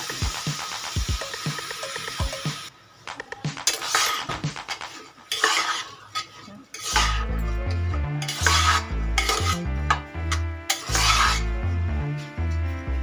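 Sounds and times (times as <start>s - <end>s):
metal spoon scraping rice in pan: 3.7s - 7.2s, 8.2s - 9.6s, 10.7s - 11.4s
background music with deep bass: 7.0s - 13.0s.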